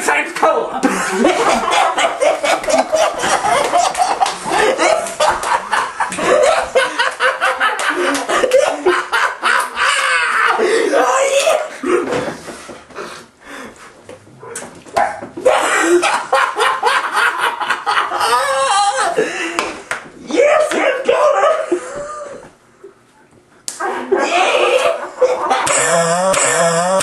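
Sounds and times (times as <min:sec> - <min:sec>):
men laughing: 0:00.8 - 0:11.2, 0:15.4 - 0:19.7, 0:23.8 - 0:27.0.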